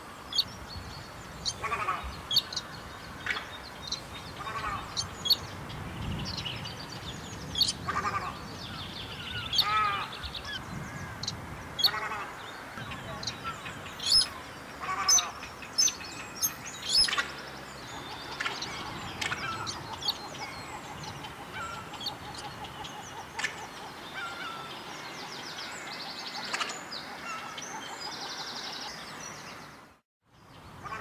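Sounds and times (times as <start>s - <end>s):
bird chattering trills: 7.5s - 24.6s.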